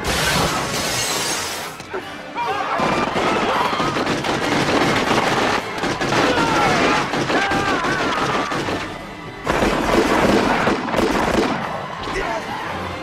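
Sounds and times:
background music: 0.0 - 13.0
glass screen shattering: 0.1 - 1.8.

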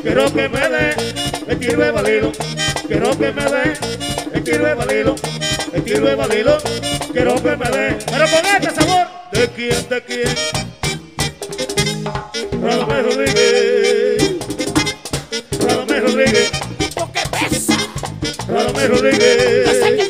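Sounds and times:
button accordion melody: 0.0 - 20.0
drum beat: 5.7 - 9.0, 11.0 - 13.4, 14.2 - 20.0.

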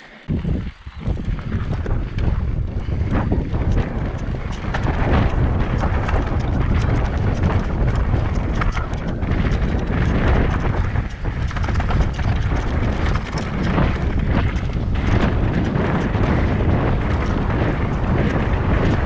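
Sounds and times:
wind rumbling on microphone: 0.0 - 19.0
bike knocks and rattles: 0.3 - 19.0.

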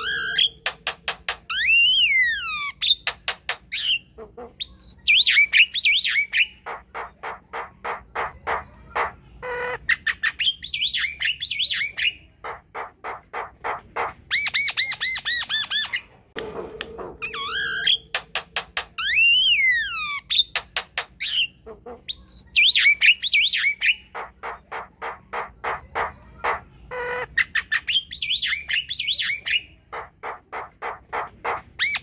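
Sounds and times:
bird singing varied song: 0.0 - 7.1, 9.4 - 12.4, 17.2 - 25.5, 26.9 - 30.7.

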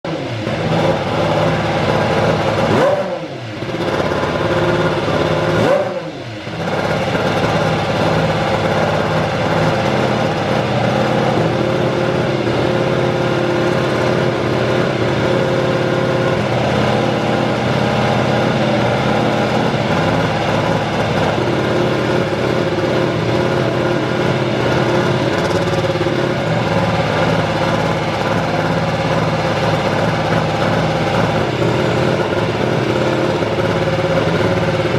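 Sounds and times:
racing engine running steadily: 0.0 - 34.9
racing engine revving: 0.1 - 34.9.

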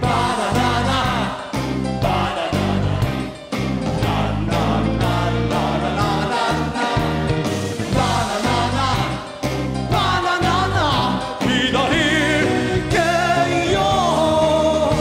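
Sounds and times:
live rock band playing: 0.0 - 15.0
man singing: 9.9 - 15.0.

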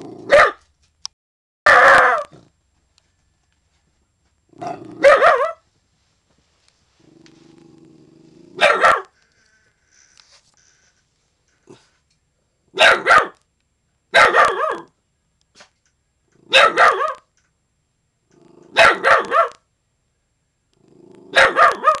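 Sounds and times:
dogs barking: 0.2 - 0.6, 1.7 - 2.3, 4.6 - 5.6, 8.6 - 9.1, 12.8 - 13.4, 14.2 - 14.9, 16.5 - 17.2, 18.7 - 19.6, 21.3 - 22.0
dog growling: 4.6 - 5.1, 7.0 - 8.7, 18.3 - 19.0, 20.8 - 22.0.

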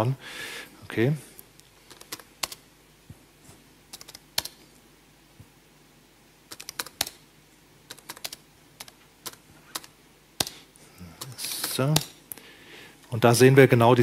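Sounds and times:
computer keyboard typing: 1.9 - 2.6, 3.9 - 4.6, 6.5 - 7.2, 7.9 - 10.6.

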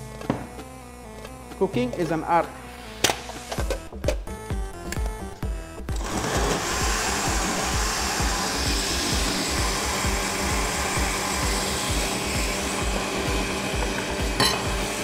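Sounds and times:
music with steady beat: 0.0 - 15.0
blender running: 5.8 - 15.0.

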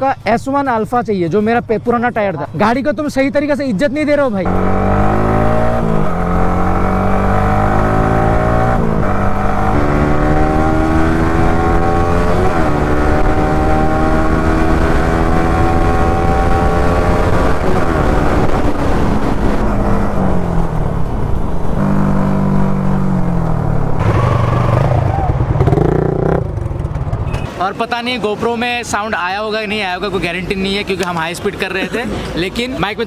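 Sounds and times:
motorcycle engine accelerating: 4.4 - 27.5.

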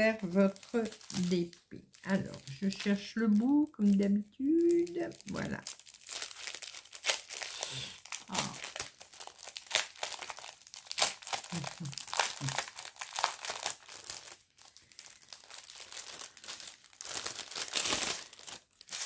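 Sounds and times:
plastic packaging crinkling: 0.0 - 19.0.

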